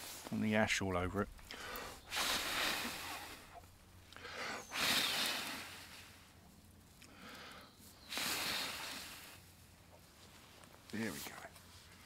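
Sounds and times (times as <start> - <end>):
person blowing hard: 2.0 - 6.2, 8.0 - 9.5.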